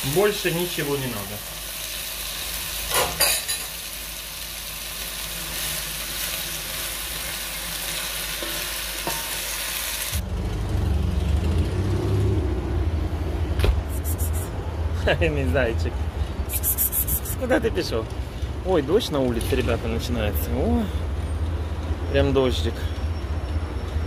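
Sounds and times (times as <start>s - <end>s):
food sizzling in a pan: 0.0s - 10.2s
low rumble of street traffic: 0.0s - 24.0s.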